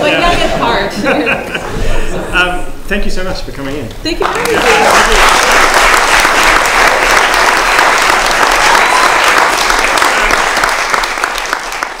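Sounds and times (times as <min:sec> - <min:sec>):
crowd applause: 0:04.2 - 0:12.0.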